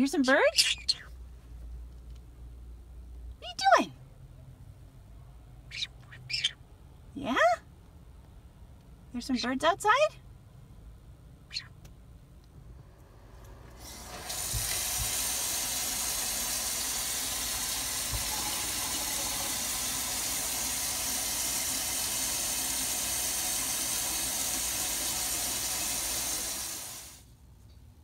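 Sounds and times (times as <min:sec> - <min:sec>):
running water hiss: 0:13.8 - 0:27.3.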